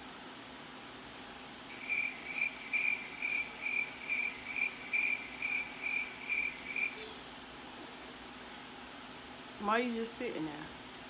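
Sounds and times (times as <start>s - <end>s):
cricket chirping: 1.7s - 7.1s.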